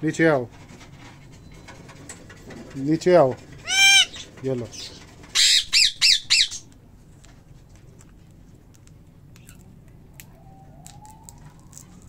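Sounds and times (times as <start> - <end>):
parrot squawking: 3.6 - 6.7.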